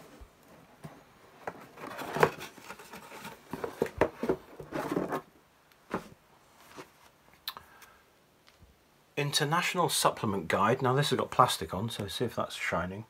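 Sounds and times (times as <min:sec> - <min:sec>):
books rustling: 0:00.0 - 0:07.2.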